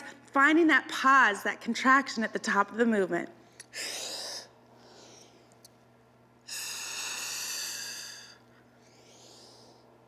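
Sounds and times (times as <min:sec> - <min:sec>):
person breathing hard: 0:03.6 - 0:05.5, 0:06.5 - 0:10.0.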